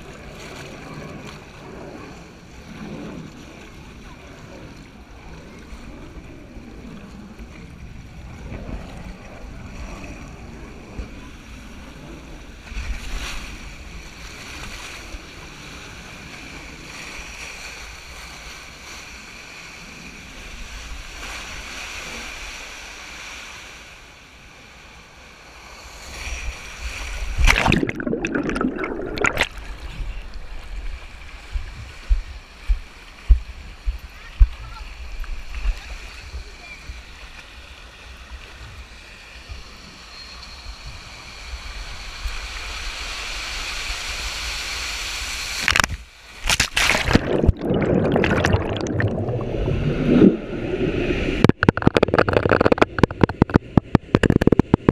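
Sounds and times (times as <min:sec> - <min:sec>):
water rushing under tube: 0:27.1 - 0:30.0, 0:45.6 - 0:54.9
loud splashing: 0:27.4 - 0:29.8, 0:46.4 - 0:50.5
thumps: 0:51.4 - 0:54.9.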